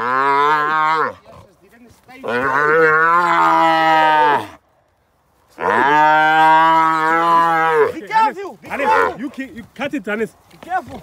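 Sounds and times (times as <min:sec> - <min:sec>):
cattle mooing: 0:00.0 - 0:01.6, 0:02.2 - 0:04.6, 0:05.6 - 0:08.1, 0:08.7 - 0:09.4.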